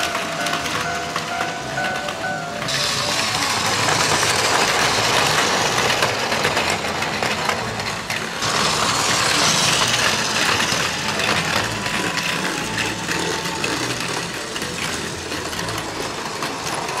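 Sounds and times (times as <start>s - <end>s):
toy train motors whirring: 0.0s - 17.0s.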